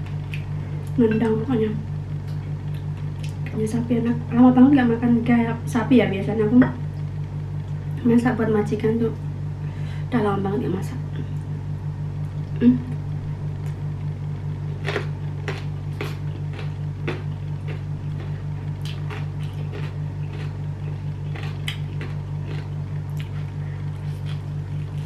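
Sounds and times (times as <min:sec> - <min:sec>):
low hum: 0:00.0 - 0:25.0
chewing with crunches: 0:02.2 - 0:03.6, 0:13.6 - 0:25.0.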